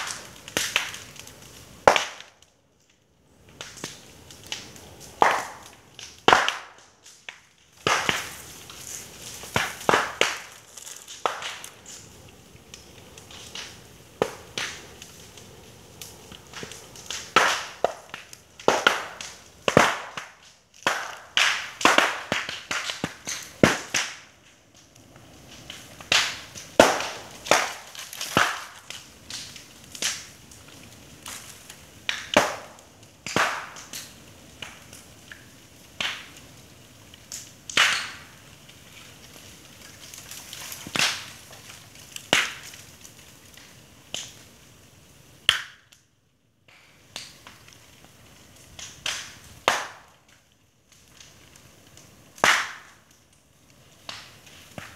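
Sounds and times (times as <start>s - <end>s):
flames crackling: 0.0s - 54.9s
bamboo stems popping: 3.6s - 12.1s, 25.7s - 36.3s.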